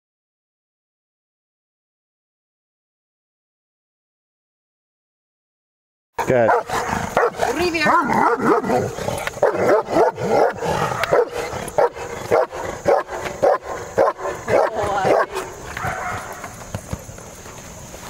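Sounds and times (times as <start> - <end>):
dog barking: 6.2 - 16.4.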